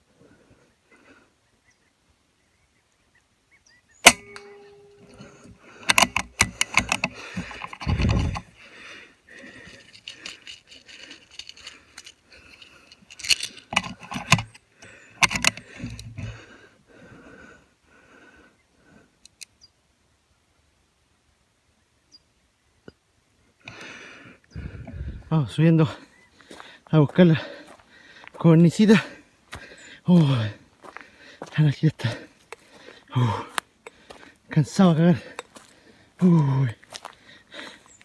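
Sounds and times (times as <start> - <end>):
rifle handling clicks and rattles: 4.0 - 8.6, 9.3 - 16.4, 19.2 - 19.5.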